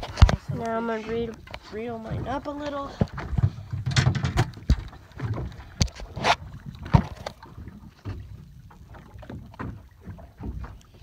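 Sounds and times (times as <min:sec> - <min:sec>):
water lapping against boat hull: 0:00.0 - 0:11.0
knocks and thumps: 0:03.0 - 0:06.0.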